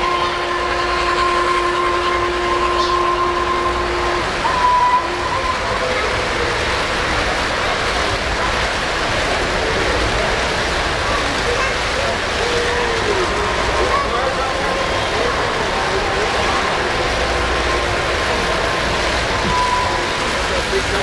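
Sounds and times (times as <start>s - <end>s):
model train whistle: 0.0s - 7.0s, 14.9s - 21.0s
model train cars rolling on track: 0.0s - 21.0s.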